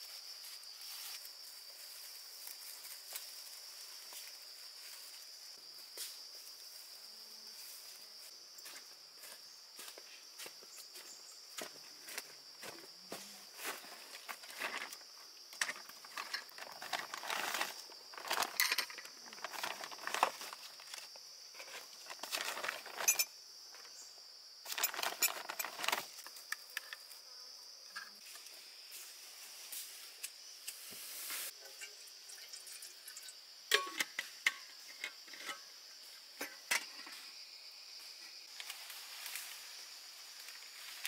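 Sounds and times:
insects droning: 0.0 - 41.0
rustling and clinks of handling: 15.6 - 21.0, 21.6 - 23.3, 24.7 - 26.1.

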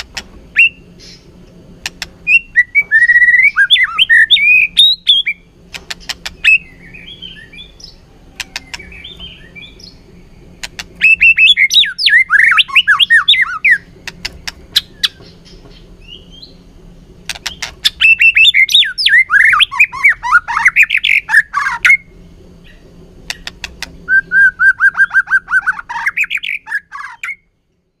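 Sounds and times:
bird singing whistled phrases: 0.6 - 1.2, 2.3 - 5.4, 6.4 - 10.0, 11.0 - 13.8, 18.0 - 22.1, 24.1 - 27.5
bird sharp clicks: 1.8 - 2.2, 5.7 - 6.4, 8.4 - 8.9, 14.0 - 15.6, 17.3 - 17.8.

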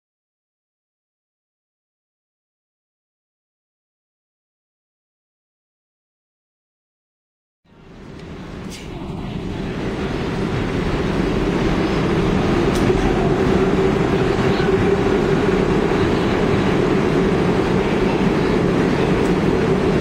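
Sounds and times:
subway train rumbling: 7.7 - 20.0.

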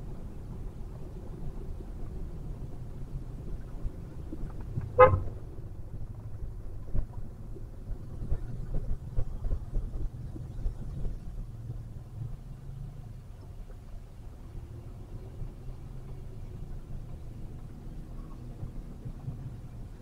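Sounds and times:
road and engine rumble in car: 0.0 - 20.0
short car horn toot: 5.0 - 5.2.

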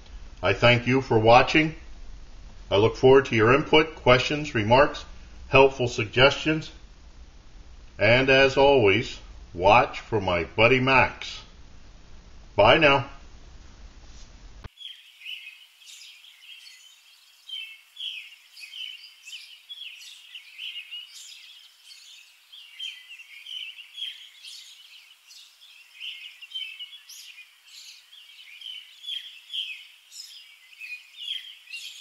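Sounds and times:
small birds chirping: 14.7 - 32.0.

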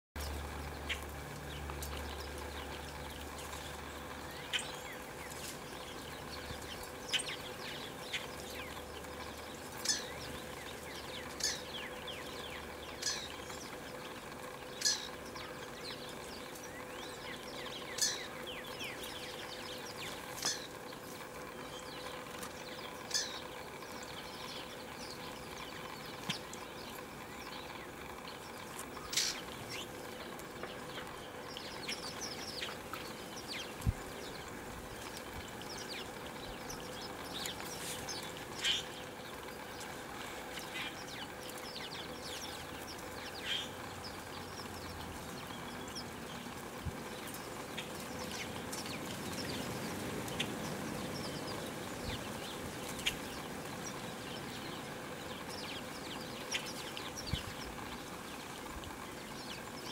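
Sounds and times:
faint steady hum: 0.2 - 59.9
sparrows chirping: 0.2 - 59.9.

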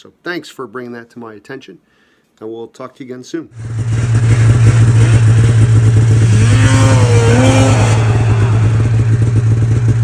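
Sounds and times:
snowmobile engine: 3.6 - 10.0
person shouting: 7.1 - 9.4.

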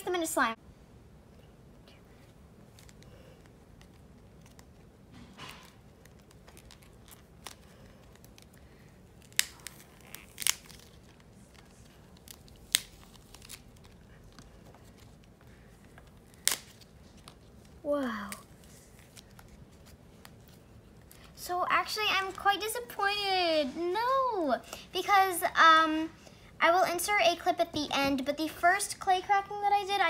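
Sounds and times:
clay ball crackling: 1.3 - 24.5.

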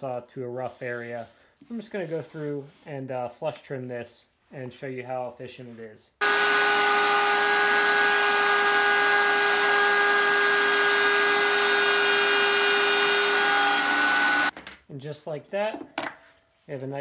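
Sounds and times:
router whining: 6.2 - 14.5.

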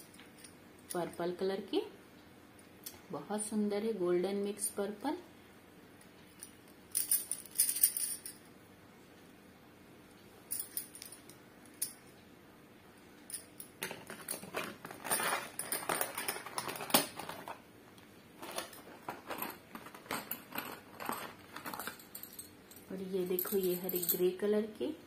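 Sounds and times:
bangles clinking and jangling: 6.4 - 8.5, 10.5 - 12.1, 13.3 - 17.3, 18.5 - 24.4.

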